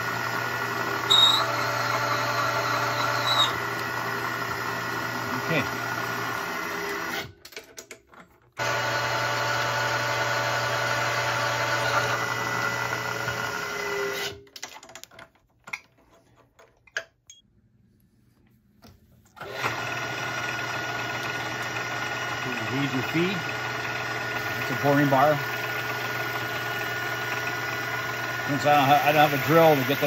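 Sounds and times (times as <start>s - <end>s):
milling machine motor humming: 0.0s - 7.3s, 8.6s - 14.1s, 19.4s - 30.0s.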